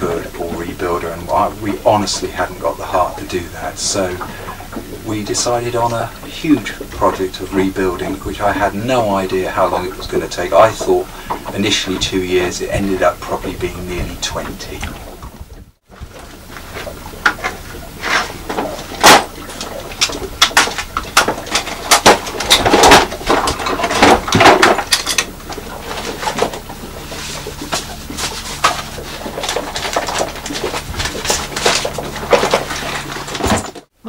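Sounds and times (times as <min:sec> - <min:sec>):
papers rustling: 0:20.5 - 0:33.9.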